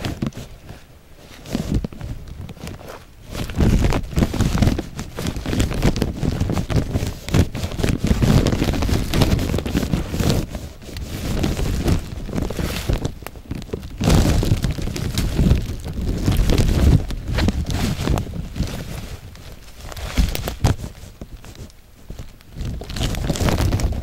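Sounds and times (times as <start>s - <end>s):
brushing through plants: 0.0s - 24.0s
wind noise on microphone: 0.0s - 24.0s.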